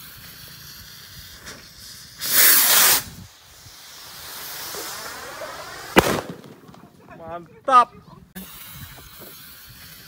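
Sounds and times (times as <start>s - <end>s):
rushing hiss of rocket flying: 0.0s - 6.8s
rocket igniting with hissing whoosh: 0.0s - 7.0s
sharp bang: 6.0s - 6.8s.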